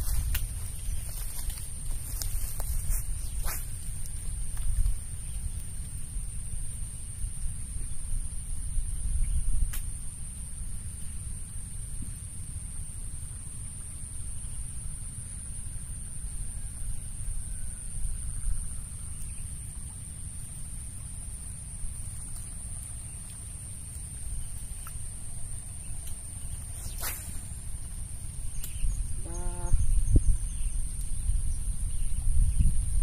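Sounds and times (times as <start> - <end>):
wind rumble on microphone: 0.0 - 20.0, 21.2 - 33.0
steady high-pitched whine: 0.0 - 33.0
fishing rod swish: 26.6 - 27.7.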